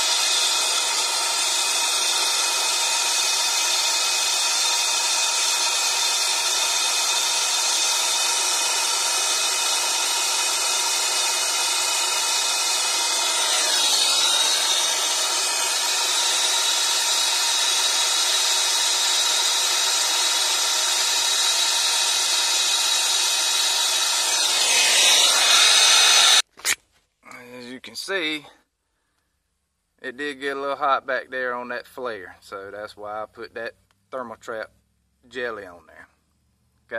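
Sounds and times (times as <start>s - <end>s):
torch flame hissing: 0.0s - 26.5s.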